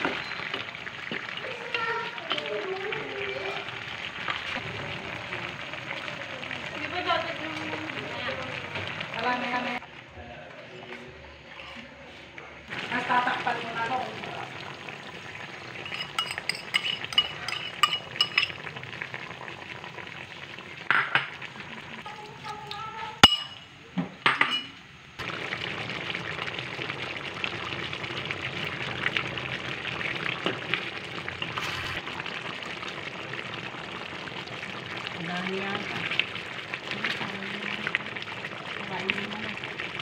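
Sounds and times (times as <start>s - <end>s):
food sizzling in a wok: 0.0s - 9.8s, 12.7s - 40.0s
metal spoon clinking on bowl: 15.8s - 18.6s, 23.2s - 23.6s, 24.3s - 24.7s.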